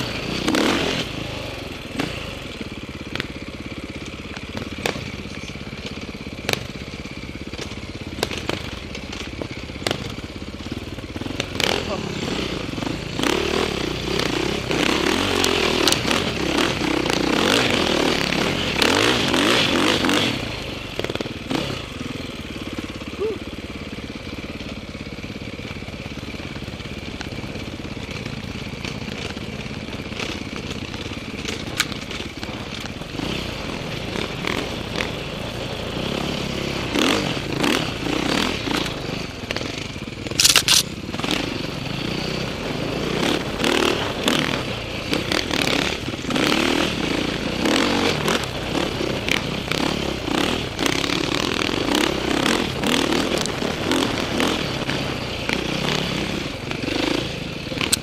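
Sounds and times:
dirt bike engine revving: 0.0 - 24.6, 25.2 - 58.0
scraping and clattering over ground: 38.8 - 41.0.

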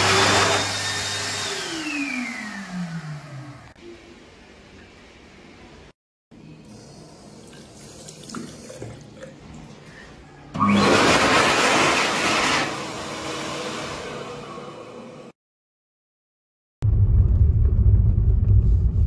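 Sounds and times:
electric hand dryer blowing: 0.0 - 3.8, 10.6 - 15.2
water tap running: 6.7 - 9.7.

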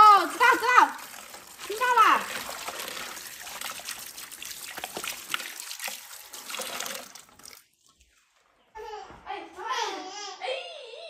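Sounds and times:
water splashing in metal basin: 0.0 - 8.1.

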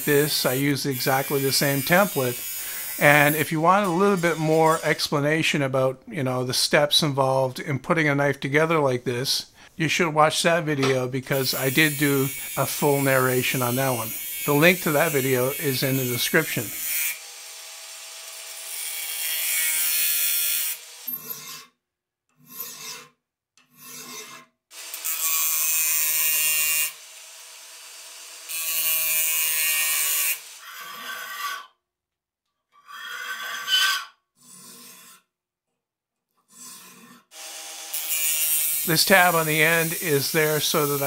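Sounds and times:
angle grinder grinding steel: 0.0 - 5.0, 11.3 - 21.8, 23.7 - 31.8, 32.8 - 35.3, 36.6 - 41.0
hand file rasping on steel: 1.0 - 4.8, 19.2 - 21.8, 22.4 - 24.5, 28.8 - 31.8, 32.8 - 35.3, 36.5 - 37.4.

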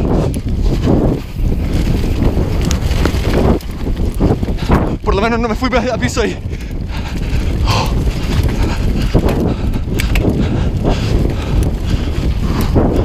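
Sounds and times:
bike rattling over bumps: 0.0 - 13.0
bike tyre noise: 0.0 - 13.0
wind rumble on microphone: 0.0 - 13.0.

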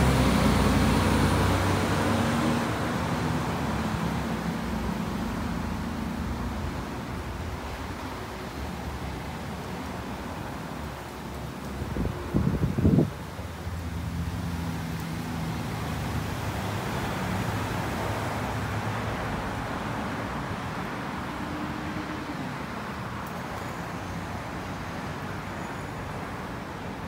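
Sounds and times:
vehicle engine passing: 0.0 - 4.3
traffic noise: 0.0 - 27.0.

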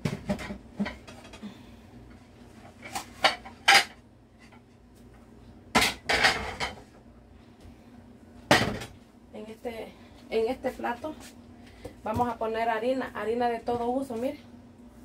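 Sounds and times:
plates and dishes clattering: 2.8 - 4.7, 5.7 - 6.9.

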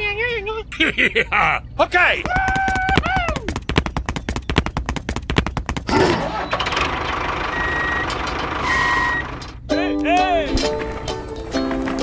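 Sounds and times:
rapid knocking clatter: 2.2 - 7.4
tractor engine: 5.0 - 12.0.

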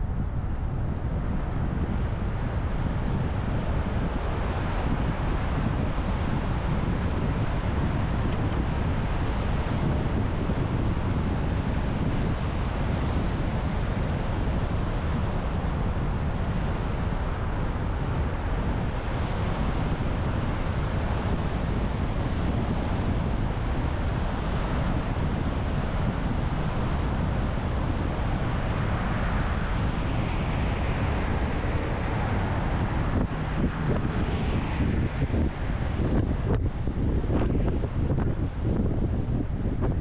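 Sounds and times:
wind: 0.0 - 40.0.

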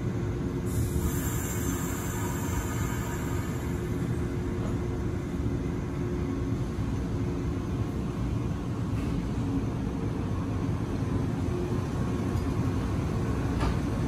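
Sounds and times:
electric train equipment hum: 0.0 - 14.0.

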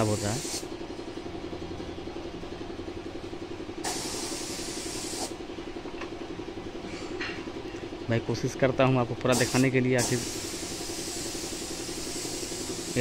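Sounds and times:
spray gun hissing: 0.0 - 0.7, 3.8 - 5.3, 9.3 - 13.0
pulsing machine running: 7.6 - 13.0.

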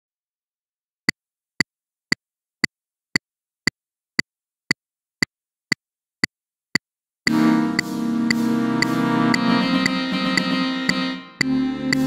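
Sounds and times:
metronome clicks: 7.3 - 12.0.

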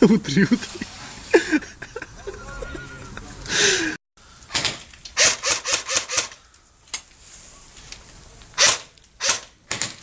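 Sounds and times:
airsoft rifle shots: 4.5 - 6.4, 8.6 - 9.6.

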